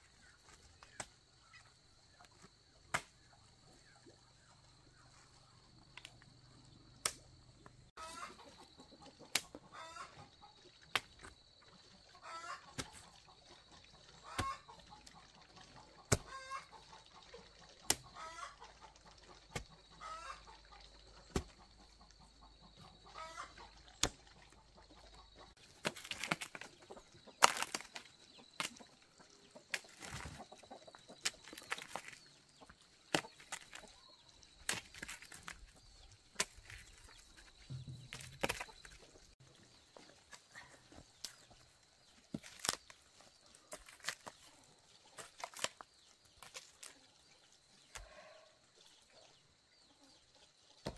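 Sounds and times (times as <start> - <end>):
chickens clucking: 7.9 - 47.2.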